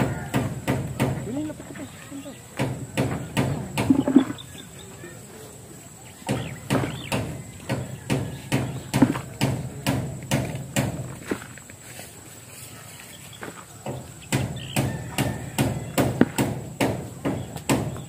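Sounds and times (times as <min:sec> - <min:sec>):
digging tool striking ground: 0:02.6 - 0:04.6, 0:06.3 - 0:11.9, 0:13.4 - 0:18.0.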